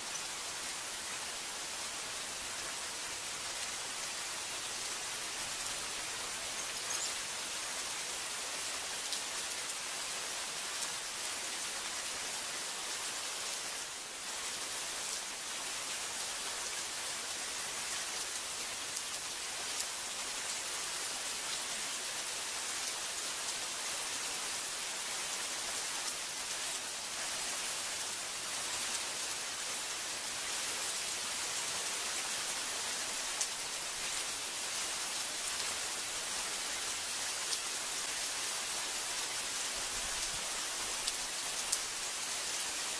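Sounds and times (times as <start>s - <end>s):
heavy rain falling: 24.5s - 42.9s.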